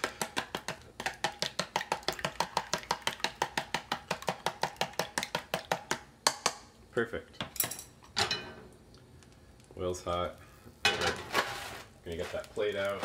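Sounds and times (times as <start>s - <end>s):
chopsticks beating eggs: 0.0s - 6.6s.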